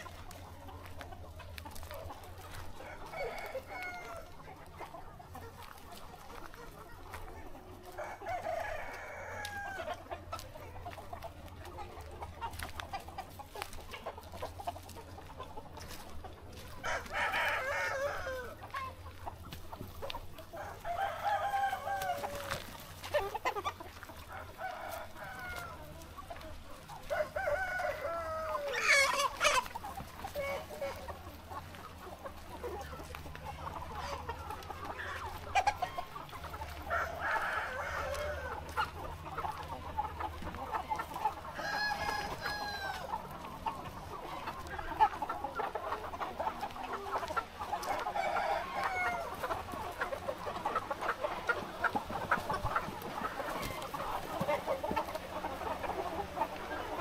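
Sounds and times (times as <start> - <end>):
chickens clucking: 0.0 - 57.0
roosters crowing: 2.5 - 4.6, 7.9 - 10.1, 16.6 - 18.8, 20.4 - 26.0, 26.8 - 31.8, 33.1 - 57.0.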